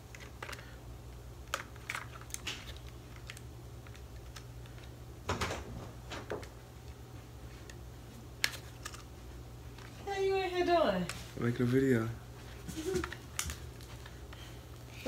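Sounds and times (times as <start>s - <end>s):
low steady hum: 0.0s - 15.0s
packaging rustling: 1.4s - 5.0s.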